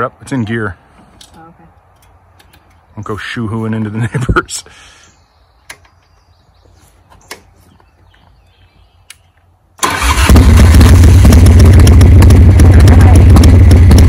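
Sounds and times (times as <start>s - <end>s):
motorcycle engine cranking and idling: 9.8s - 14.0s.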